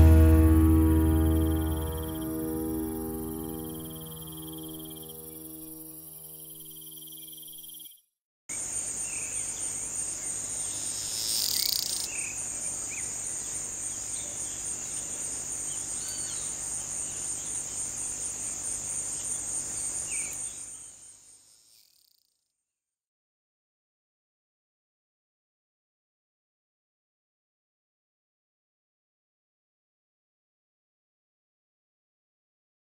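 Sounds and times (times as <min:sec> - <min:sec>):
cicada buzzing: 0:00.0 - 0:07.9, 0:10.4 - 0:14.0
faint bird chirps: 0:01.0 - 0:18.5.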